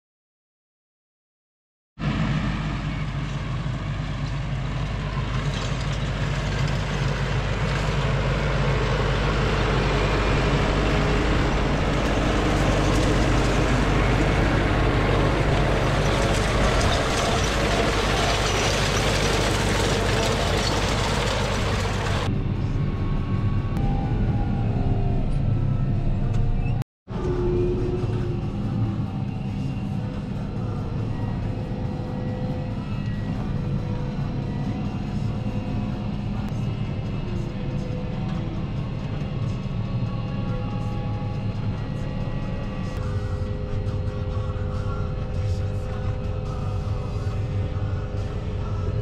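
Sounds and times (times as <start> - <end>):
tractor diesel engine running: 2.0 - 22.7, 28.0 - 49.0
rushing machinery noise: 2.0 - 26.5.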